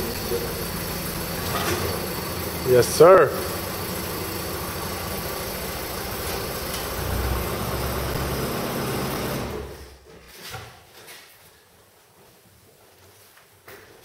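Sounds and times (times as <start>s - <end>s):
car engine idling: 0.0s - 9.9s.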